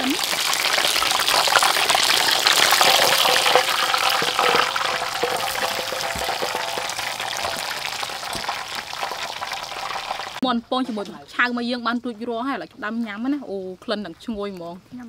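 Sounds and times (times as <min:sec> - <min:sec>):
hot oil sizzling and crackling: 0:00.0 - 0:10.4.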